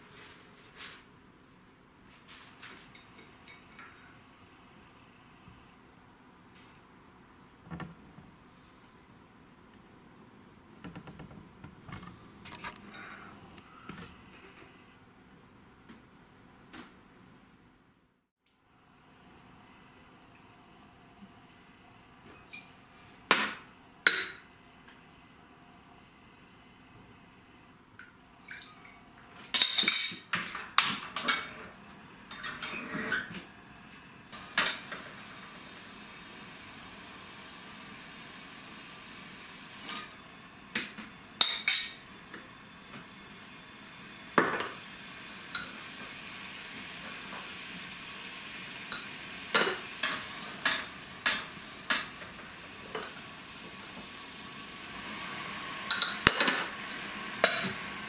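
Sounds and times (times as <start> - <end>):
gas burner hissing: 30.8 - 58.0.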